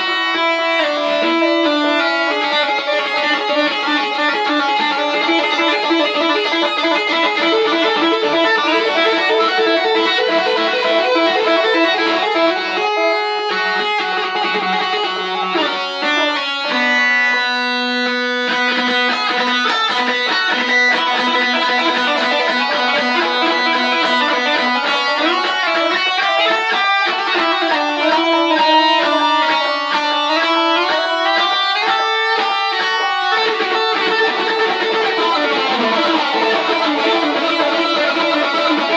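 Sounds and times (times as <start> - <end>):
electric guitar with echo: 0.0 - 38.9.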